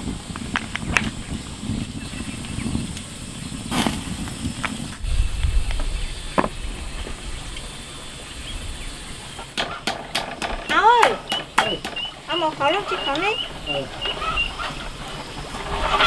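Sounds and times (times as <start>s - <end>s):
low rumble: 0.0s - 9.4s.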